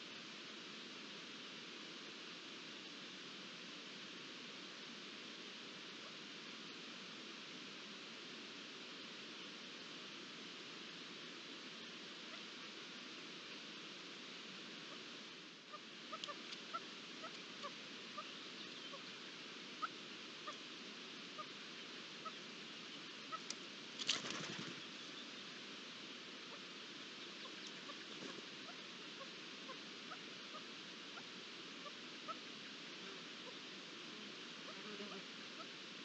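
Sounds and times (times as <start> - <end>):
bird wings flapping: 24.0 - 24.9.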